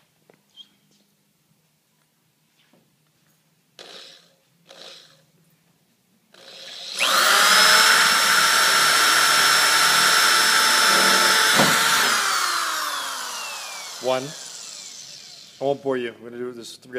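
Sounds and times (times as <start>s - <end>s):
electric drill boring sheet metal: 6.4s - 15.9s.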